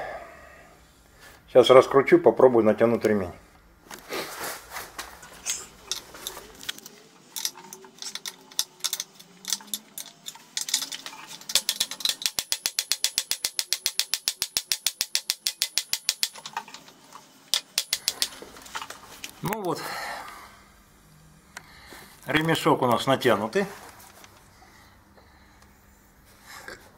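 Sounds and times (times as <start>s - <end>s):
ratchet wrench clicking: 7.3s - 16.8s, 17.5s - 18.4s.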